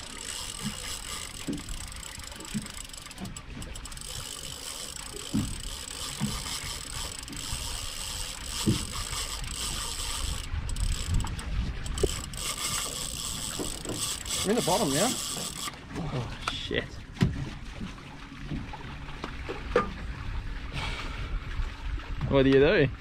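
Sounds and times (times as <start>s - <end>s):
fishing reel gears whirring: 0.0s - 15.8s.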